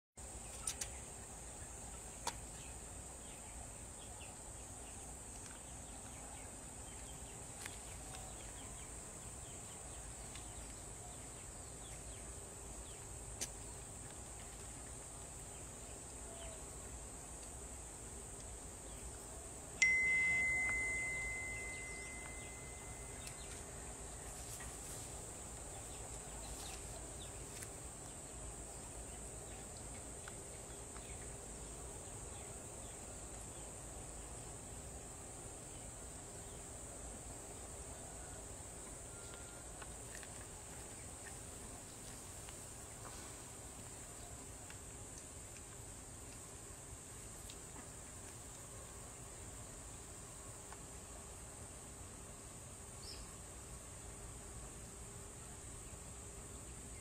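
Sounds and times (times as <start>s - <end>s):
sharp ringing ping: 19.8s - 23.2s
high-pitched insect drone: 19.8s - 23.4s.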